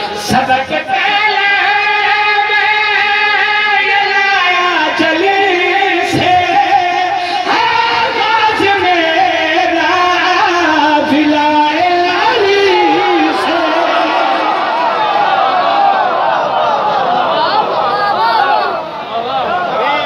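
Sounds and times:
man chanting over loudspeaker: 0.0s - 15.0s.

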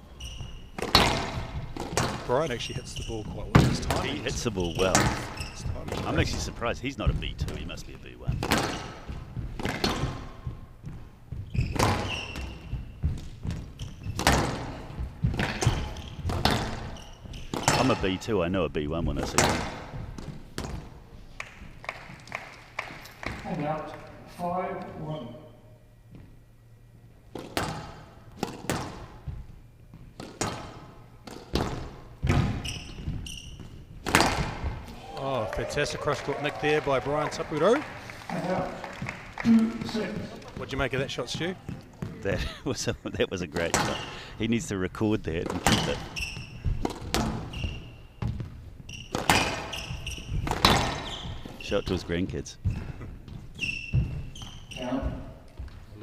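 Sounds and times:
shoe squeak: 0.0s - 1.7s, 2.3s - 6.2s, 8.2s - 18.0s, 25.0s - 25.8s, 32.3s - 33.9s, 45.7s - 55.4s
squash ball cracking off racket and walls: 0.4s - 2.3s, 3.5s - 6.4s, 8.3s - 18.1s, 19.2s - 23.6s, 27.3s - 35.0s, 43.5s - 44.1s, 45.4s - 51.7s
squash ball cracks: 34.0s - 35.0s.

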